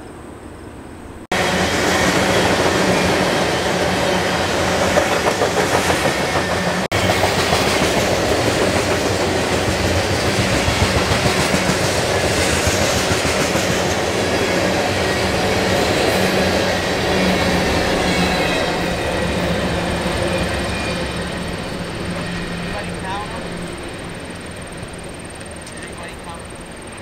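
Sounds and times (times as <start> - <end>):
freight train wheels rumbling on rails: 1.3 - 27.0
clickety-clack over rail joints: 4.6 - 17.0.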